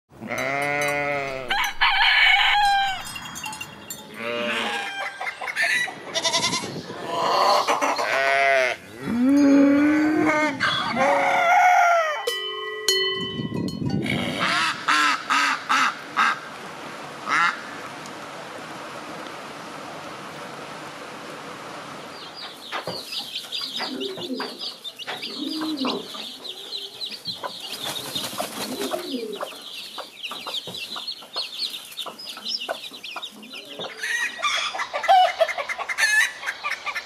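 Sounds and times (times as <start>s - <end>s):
cow mooing: 0.2s - 1.5s, 4.1s - 5.0s, 8.1s - 11.2s, 14.0s - 14.7s
sheep bleating: 0.2s - 1.5s, 4.1s - 5.0s, 8.0s - 10.3s
poultry calls: 4.0s - 9.2s, 14.0s - 16.4s, 22.5s - 37.0s.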